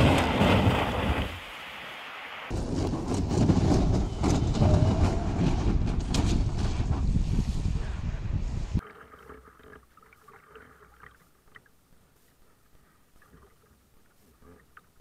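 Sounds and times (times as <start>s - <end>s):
paddle splashing water: 0.0s - 2.5s, 8.8s - 15.0s
wind buffeting microphone: 2.5s - 8.8s.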